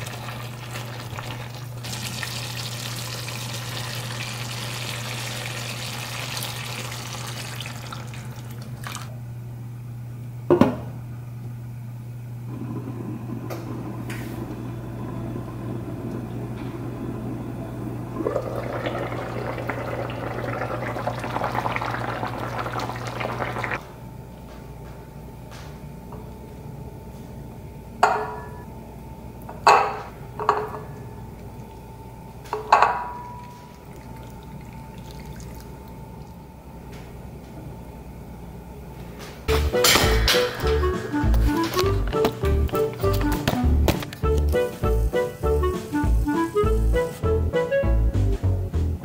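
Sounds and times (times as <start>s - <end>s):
food sizzling and simmering: 0.0s - 8.8s, 12.5s - 23.8s
sauce bubbling at a boil: 0.0s - 8.8s, 12.5s - 23.8s
steady low hum: 8.1s - 47.0s.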